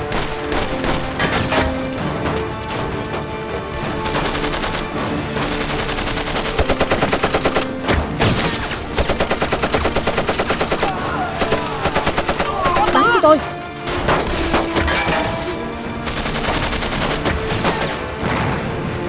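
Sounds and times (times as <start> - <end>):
machine gun firing in bursts: 0.0 - 1.9, 4.0 - 7.9, 8.5 - 13.1, 16.0 - 18.6
film music: 0.0 - 19.0.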